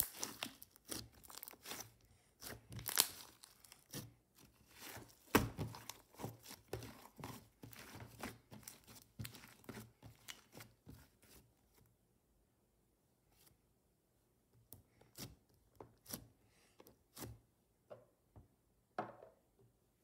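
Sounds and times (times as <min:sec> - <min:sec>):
slime crackling and popping: 0:00.0 - 0:07.3.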